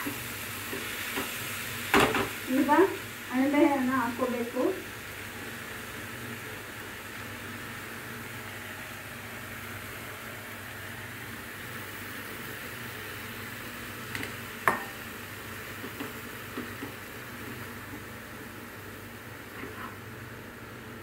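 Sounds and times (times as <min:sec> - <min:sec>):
mushrooms sizzling in oil: 0:00.0 - 0:21.0
spatula tapping a pan: 0:14.2 - 0:15.0, 0:15.8 - 0:17.0.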